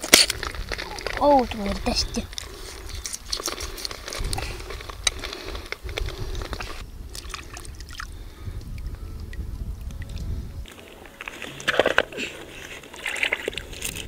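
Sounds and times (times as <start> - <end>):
water sloshing and dripping: 6.5 - 8.3, 9.3 - 14.0.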